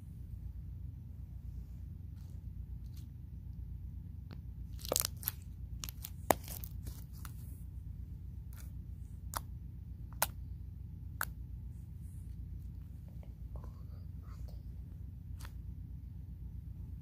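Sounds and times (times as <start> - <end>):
steady low hum: 0.0 - 17.0
slime squished with clicks and pops: 10.1 - 10.4.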